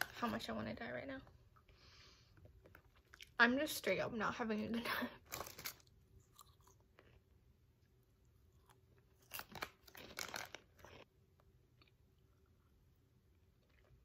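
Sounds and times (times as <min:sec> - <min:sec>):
person chewing crunchy food: 0:05.3 - 0:07.3, 0:08.3 - 0:14.0.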